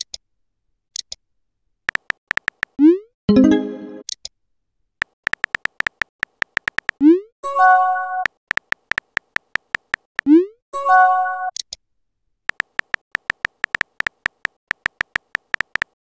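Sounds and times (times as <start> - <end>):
keyboard tap clicks: 1.9 - 2.8, 5.0 - 7.0, 8.2 - 10.1, 12.5 - 16.0
synthesized chime: 3.3 - 4.0.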